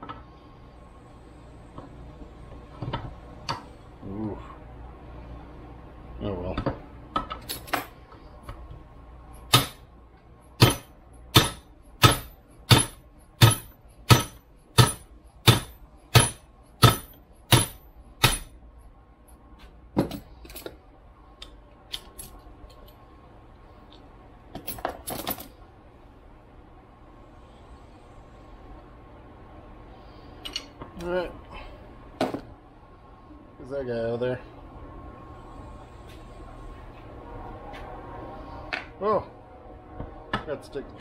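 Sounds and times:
hammer striking metal: 9.5s - 9.9s, 10.6s - 18.6s.

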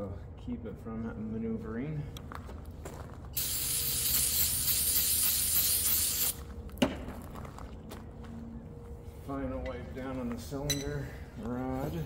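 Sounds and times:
aerosol spray can hissing: 3.4s - 6.4s.

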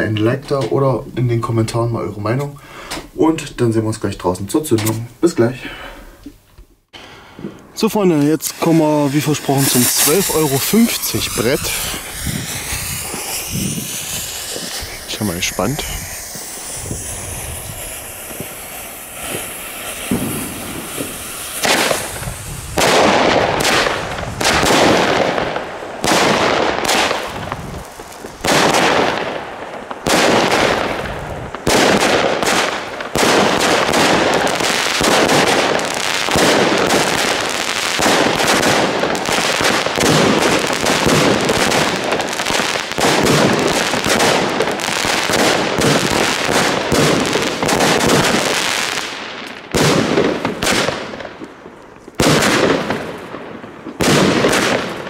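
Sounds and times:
fireworks launching and bursting: 6.9s - 55.0s
burning fuse hissing: 7.8s - 25.8s, 27.0s - 28.7s.

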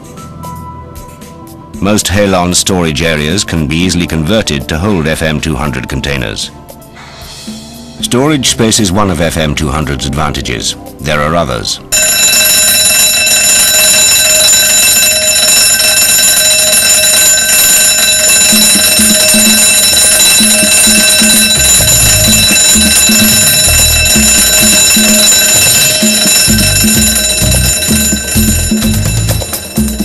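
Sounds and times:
fire alarm ringing: 11.9s - 30.0s
pulsing electronic music beat: 18.5s - 30.0s.

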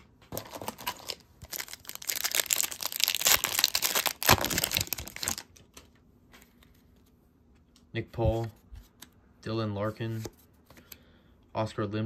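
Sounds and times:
foil wrapper tearing and crinkling: 0.4s - 5.6s.

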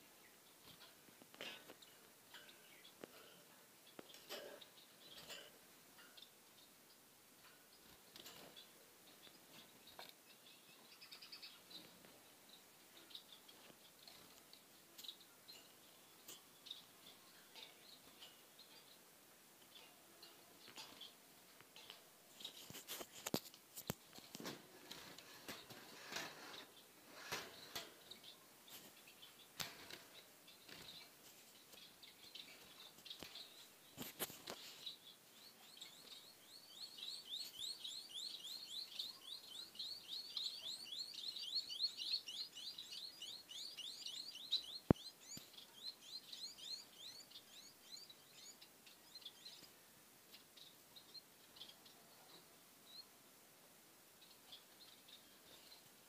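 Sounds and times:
birds rustling and clicking: 0.4s - 36.3s
finches chirping rapidly: 35.4s - 49.6s.

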